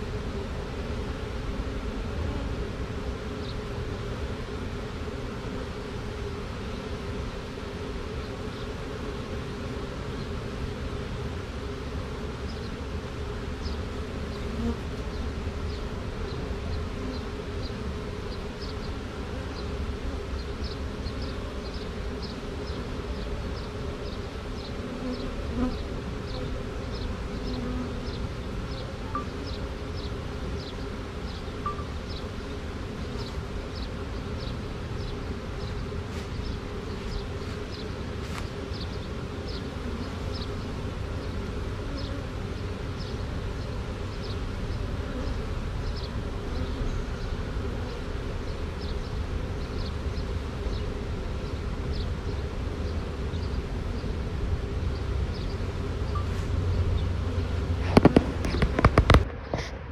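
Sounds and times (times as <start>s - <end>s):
bees buzzing: 0.0s - 59.9s.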